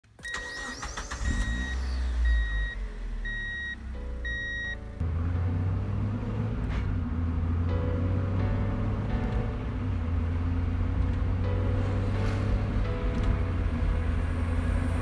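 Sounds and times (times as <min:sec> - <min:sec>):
electronic beeps: 0:00.2 - 0:04.8
low rumble: 0:05.0 - 0:15.0.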